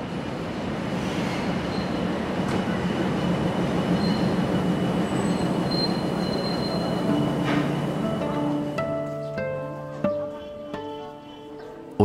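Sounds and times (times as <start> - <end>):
diesel locomotive rumbling: 0.0 - 11.9
faint high squeal: 4.0 - 7.1.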